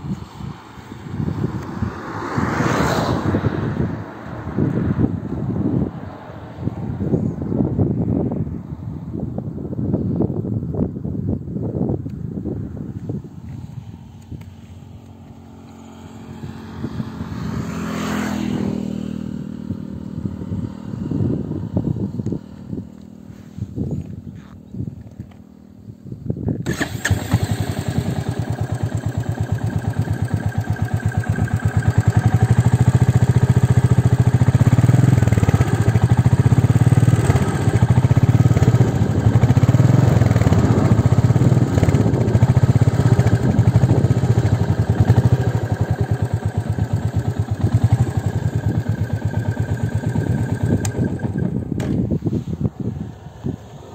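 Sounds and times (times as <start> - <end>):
motorcycle engine running: 26.6 - 52.6.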